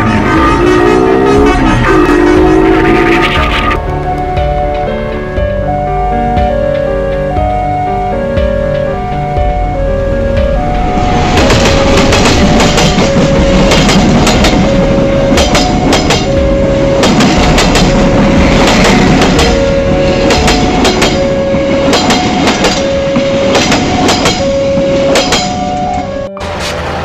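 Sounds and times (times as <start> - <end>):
two-tone crossing warning alarm: 0.0 - 26.6
train wheels clacking over rails: 11.2 - 25.7.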